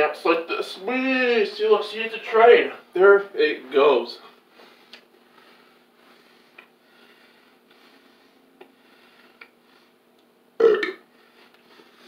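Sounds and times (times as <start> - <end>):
faint steady hum: 0.0 - 12.0
man burping: 10.6 - 11.0.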